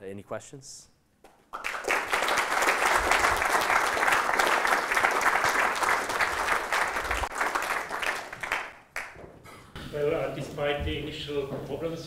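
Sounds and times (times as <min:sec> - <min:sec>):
audience applauding: 0:01.5 - 0:09.2.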